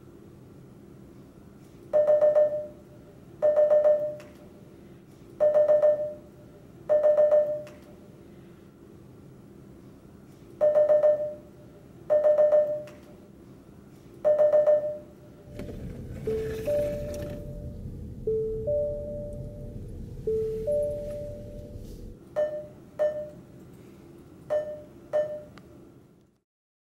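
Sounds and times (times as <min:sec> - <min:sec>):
car warning chime beeps: 0:14.3 - 0:23.4, 0:24.5 - 0:25.5.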